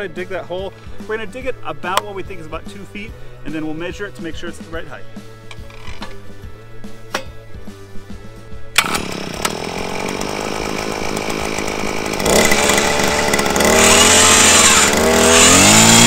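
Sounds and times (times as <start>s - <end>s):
recoil starter pull: 5.5s - 6.3s, 8.7s - 16.0s
small engine revving: 8.8s - 16.0s.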